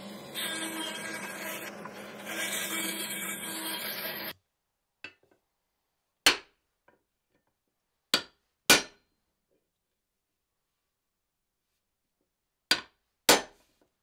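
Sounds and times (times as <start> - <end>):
bandsaw cutting wood: 0.0 - 4.3.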